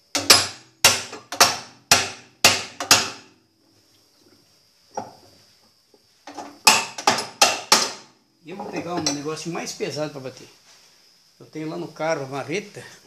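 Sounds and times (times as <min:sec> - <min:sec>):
hammer striking metal nut: 0:00.1 - 0:03.2, 0:06.6 - 0:08.0.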